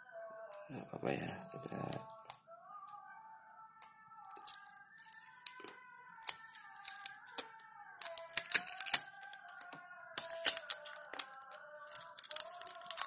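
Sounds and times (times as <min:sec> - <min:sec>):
plastic wrap crackling: 0:04.3 - 0:07.4, 0:08.0 - 0:13.0.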